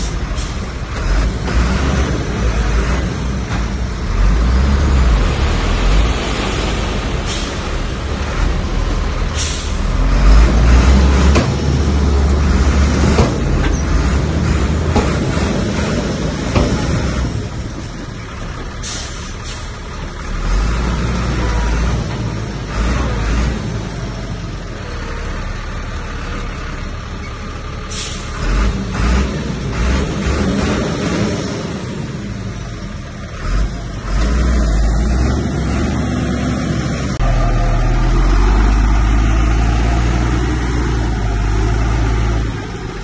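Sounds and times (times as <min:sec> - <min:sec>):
diesel engine under load: 0:00.0 - 0:43.0
short hisses: 0:09.4 - 0:09.8.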